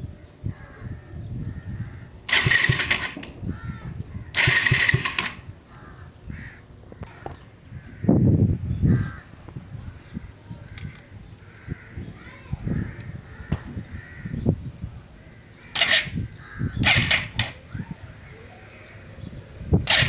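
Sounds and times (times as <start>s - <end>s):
loud hissing bursts: 2.2s - 3.3s, 4.3s - 5.5s, 15.7s - 18.0s, 19.6s - 20.0s
starter motor cranking: 2.2s - 5.5s, 15.7s - 17.8s, 19.8s - 20.0s.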